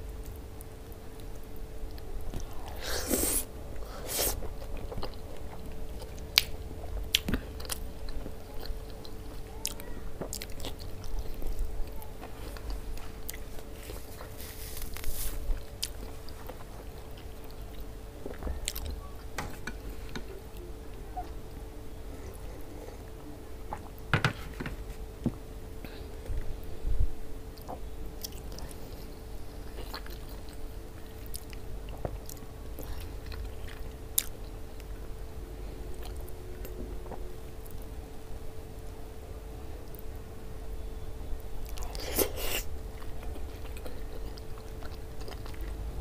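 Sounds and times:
faint steady hum: 0:00.0 - 0:46.0
close-up chewing: 0:00.2 - 0:19.3, 0:27.6 - 0:35.0, 0:41.6 - 0:46.0.

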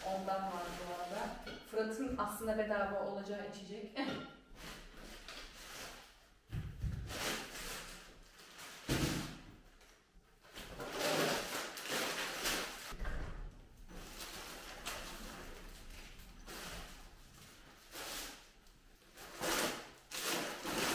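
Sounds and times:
groceries being handled: 0:00.0 - 0:01.4.

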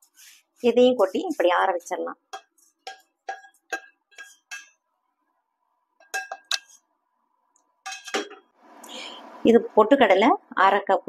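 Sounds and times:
spatula tapping metal pan: 0:02.3 - 0:04.8, 0:06.0 - 0:06.8, 0:07.8 - 0:08.5
pan clanking on stove grate: 0:06.0 - 0:06.7, 0:07.9 - 0:08.5.

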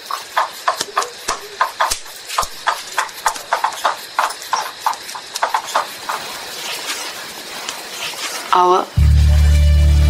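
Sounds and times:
light rapid knocks: 0:00.0 - 0:06.9.

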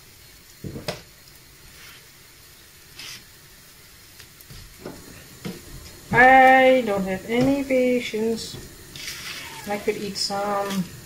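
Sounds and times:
pancake and bacon sizzling: 0:00.0 - 0:11.0.

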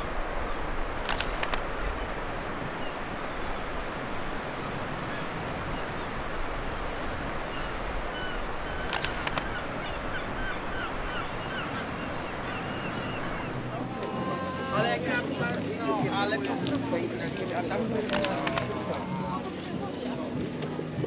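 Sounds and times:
surf washing: 0:00.0 - 0:21.0
wind: 0:00.0 - 0:21.0
sharp clicks: 0:01.0 - 0:01.8, 0:08.8 - 0:09.6, 0:18.0 - 0:18.7.

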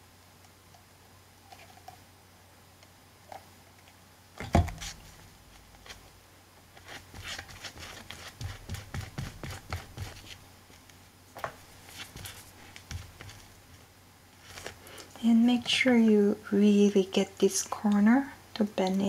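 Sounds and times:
paintbrush scratching on fabric: 0:06.8 - 0:10.4, 0:11.8 - 0:13.4.

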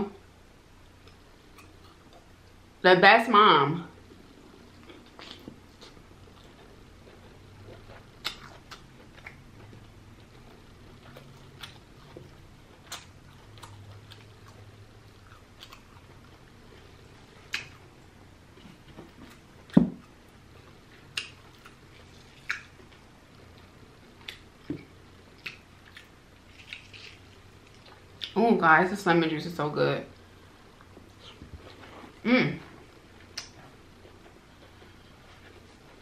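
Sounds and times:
person chewing wetly: 0:04.7 - 0:18.0, 0:18.6 - 0:28.4.

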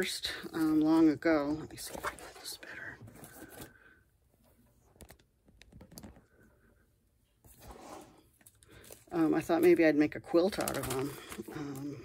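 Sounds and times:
plastic sheet protectors rustling: 0:07.5 - 0:12.0.

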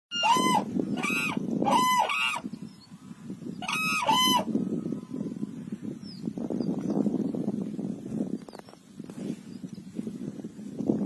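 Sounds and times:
cranes calling: 0:00.1 - 0:02.5, 0:03.6 - 0:04.6.

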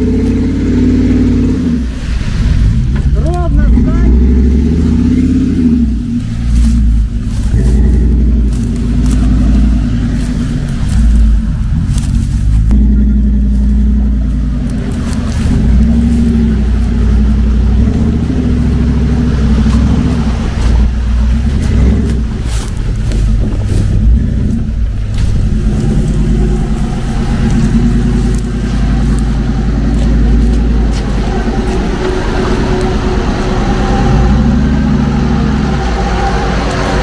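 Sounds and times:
pickup engine revving: 0:00.0 - 0:37.0.

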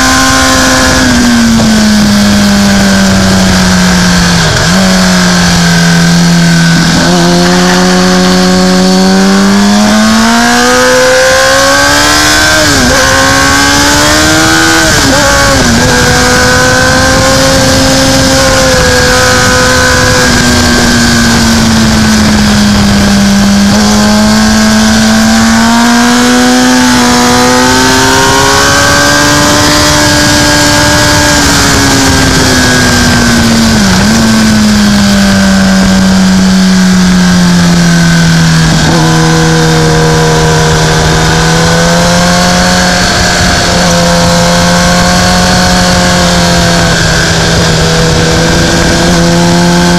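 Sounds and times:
racing motorcycle engine: 0:00.0 - 0:49.9
wind and road noise: 0:00.0 - 0:49.9.

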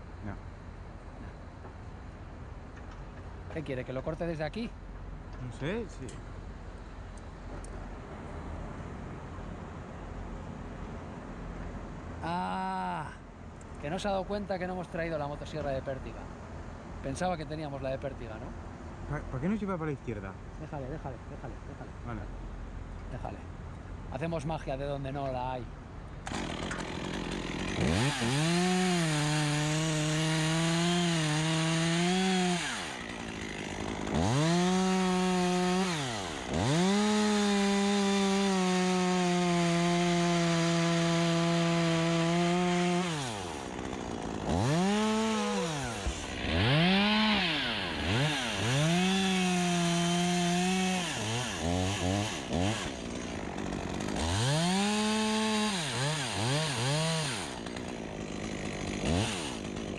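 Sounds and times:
chainsaw cutting wood: 0:26.2 - 0:59.9.

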